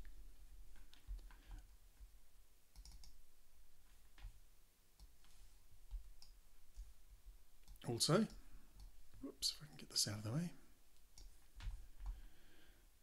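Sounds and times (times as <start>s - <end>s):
computer mouse clicks: 2.7s - 3.2s.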